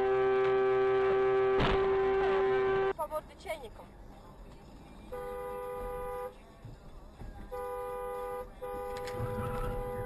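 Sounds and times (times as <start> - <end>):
two-note car horn: 0.0 - 3.0, 5.1 - 6.4, 7.5 - 10.0.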